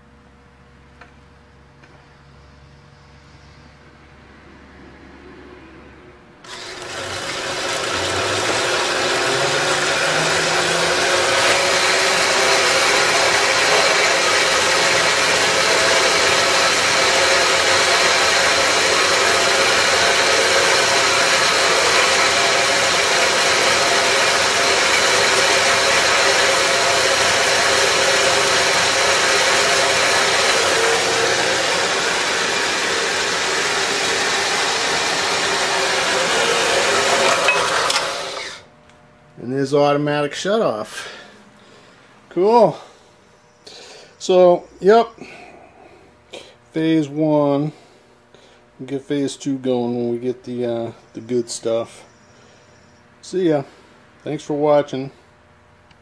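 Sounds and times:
band saw motor whine: 0:06.4 - 0:55.2.

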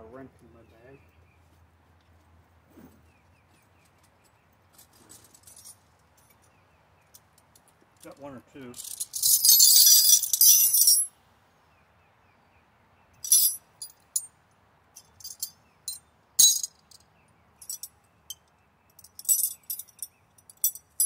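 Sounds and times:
wrenches clinking in tool bag: 0:08.8 - 0:11.1, 0:13.2 - 0:14.3, 0:15.0 - 0:17.0, 0:17.6 - 0:17.9, 0:19.0 - 0:21.0.

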